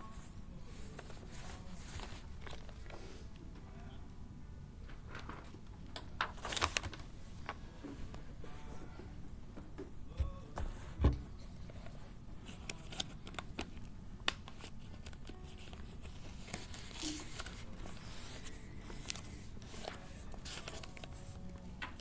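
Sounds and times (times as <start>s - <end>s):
paper rustling and crackling: 0.7s - 3.2s, 4.9s - 7.6s, 11.5s - 22.0s.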